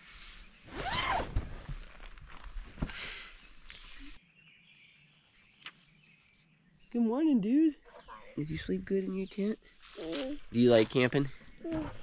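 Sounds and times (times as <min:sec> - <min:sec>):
tent zip unzipping: 0:00.6 - 0:01.9.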